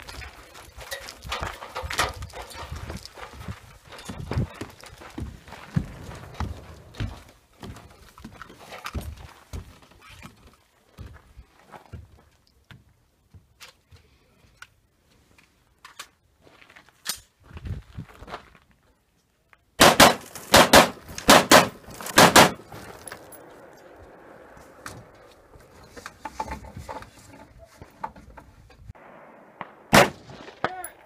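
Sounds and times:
gunshots fired in quick pairs: 19.8s - 22.6s, 29.0s - 31.0s.

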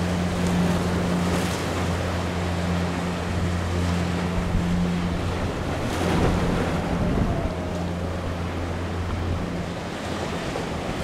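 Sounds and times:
ocean surf breaking: 0.0s - 11.0s
wind buffeting microphone: 3.3s - 11.0s.

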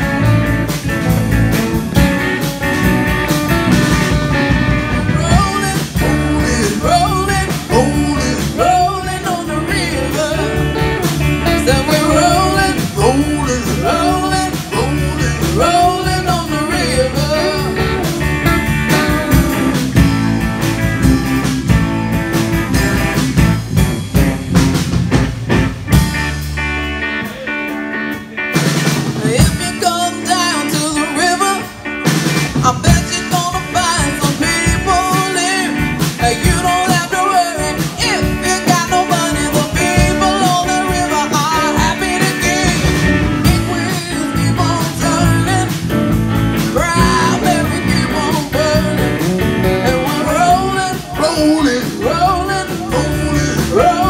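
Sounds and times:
rock band playing: 0.0s - 54.0s
person singing: 4.7s - 20.4s, 29.1s - 31.9s, 32.5s - 54.0s.

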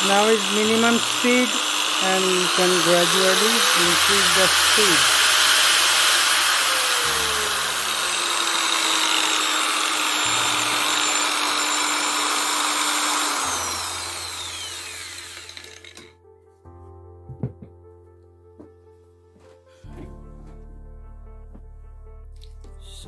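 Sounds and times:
angle grinder motor whine: 0.0s - 16.1s.

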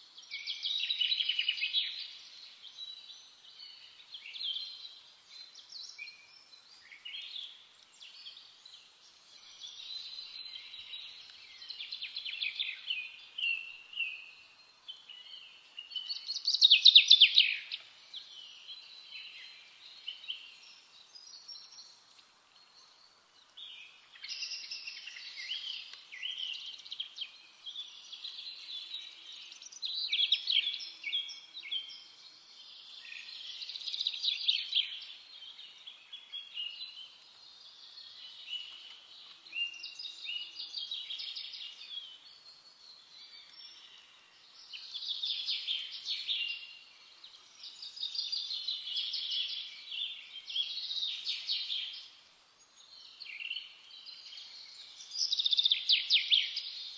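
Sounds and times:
small birds chirping and chattering: 0.0s - 56.9s.

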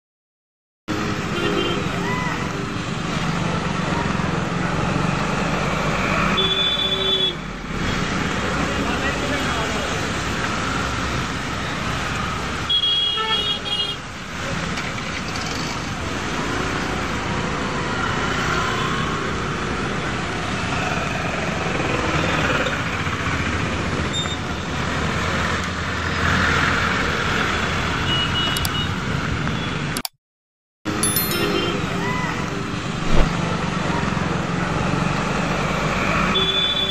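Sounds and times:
traffic on flooded road: 0.9s - 29.9s, 31.6s - 36.9s.

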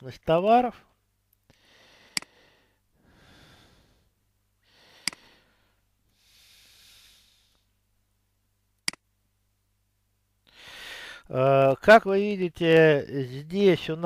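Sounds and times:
man breathing: 1.5s - 7.8s, 10.4s - 11.3s
computer mouse clicks: 8.8s - 9.0s.

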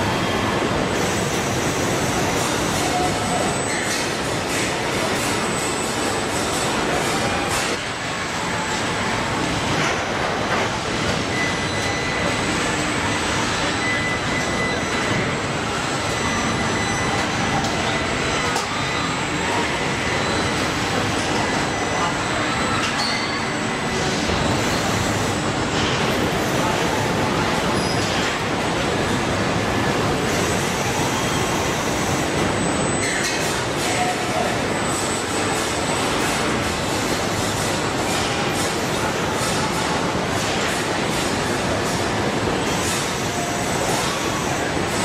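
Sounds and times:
machinery rumble and hiss: 0.0s - 45.0s.

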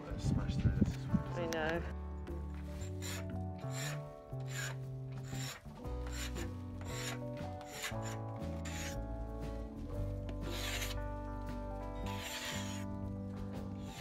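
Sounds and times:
background music with bass line: 0.0s - 14.0s
paint scraper rasping: 2.7s - 9.0s, 10.4s - 11.0s, 12.1s - 12.9s.

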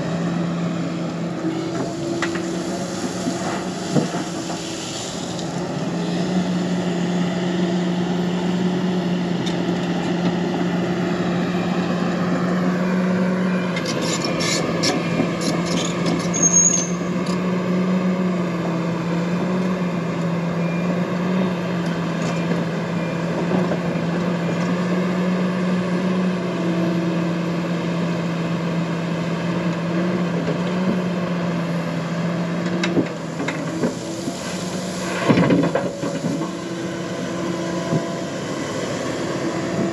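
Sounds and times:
excavator diesel engine running: 0.0s - 39.9s
brief squeal: 15.8s - 17.1s.

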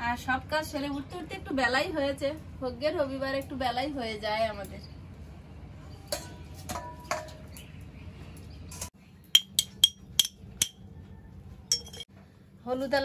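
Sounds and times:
utensils knocking dully: 9.4s - 10.8s.

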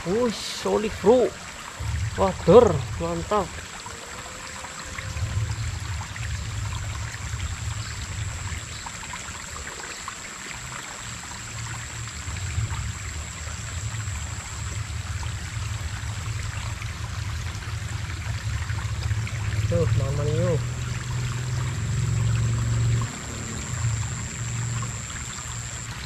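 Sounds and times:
stream water trickling over stones: 0.0s - 26.0s
low rumble: 1.8s - 3.7s, 4.9s - 8.6s, 12.5s - 26.0s
thin high tone: 21.6s - 26.0s.

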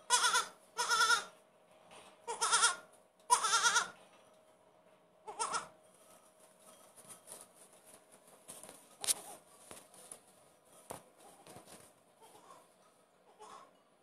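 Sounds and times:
hooves stepping in straw: 6.0s - 12.0s.

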